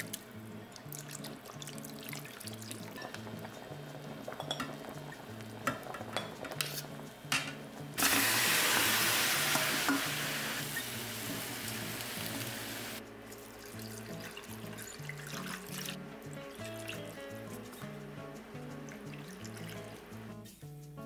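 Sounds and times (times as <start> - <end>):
soft bubbling and ticking: 0.0 - 6.2, 13.3 - 17.9, 18.5 - 20.3
soft background music: 0.0 - 21.0
meat sizzling in a pan: 7.9 - 13.0.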